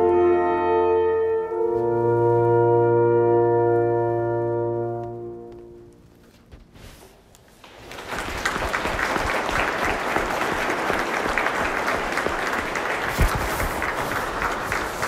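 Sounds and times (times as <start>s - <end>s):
audience applause: 7.6s - 15.0s.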